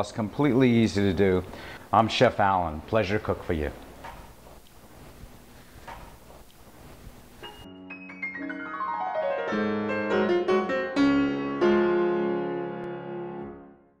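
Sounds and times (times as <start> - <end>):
piano jingle: 7.4 - 13.9.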